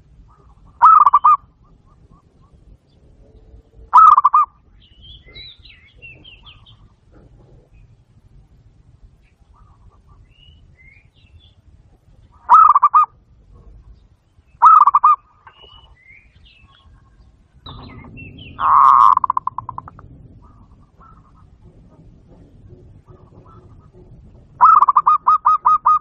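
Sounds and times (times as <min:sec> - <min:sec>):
dove cooing: 0:00.2 - 0:02.8, 0:03.8 - 0:04.6, 0:12.4 - 0:13.8, 0:14.6 - 0:15.2, 0:16.8 - 0:26.0.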